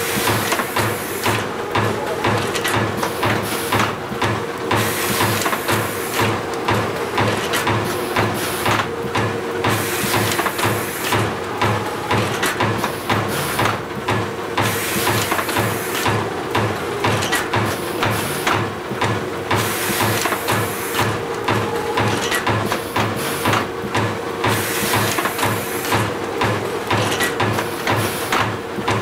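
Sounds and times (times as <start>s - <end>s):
machine clicks and clacks: 0.0s - 29.0s
machine humming and pulsing: 0.0s - 29.0s.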